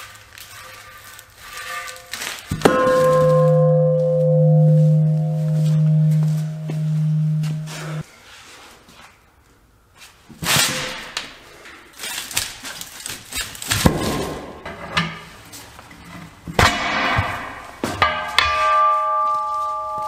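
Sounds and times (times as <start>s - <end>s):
tire thudding onto rim: 2.5s - 8.0s.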